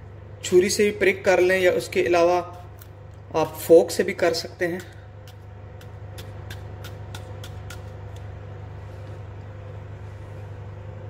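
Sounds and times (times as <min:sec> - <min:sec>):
steady low hum: 0:00.0 - 0:11.0
utensil pricking raw potato: 0:03.9 - 0:08.8.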